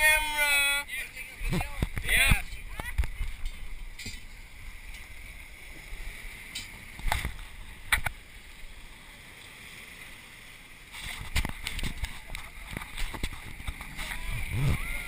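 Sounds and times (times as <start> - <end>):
water noise: 0.0 - 15.0
wind noise on microphone: 11.0 - 15.0.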